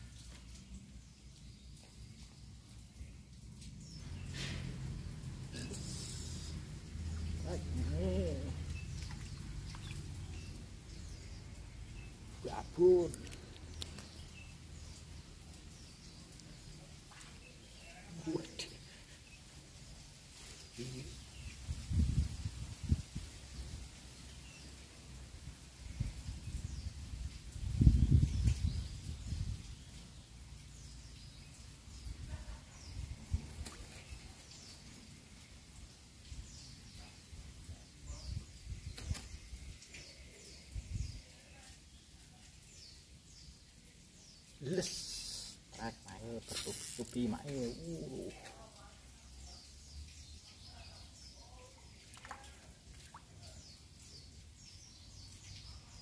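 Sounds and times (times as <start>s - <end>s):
small birds chirping: 0.0s - 56.0s.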